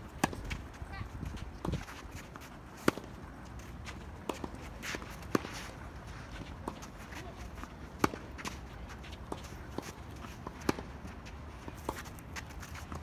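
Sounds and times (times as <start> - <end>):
tennis ball struck by rackets: 0.1 - 0.6, 2.8 - 3.2, 7.9 - 8.6, 9.3 - 11.0
footsteps scuffing on court: 0.2 - 13.0.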